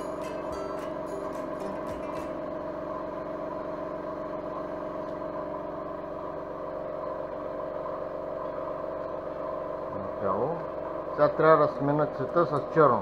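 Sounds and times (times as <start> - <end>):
air compressor humming: 0.0 - 13.0.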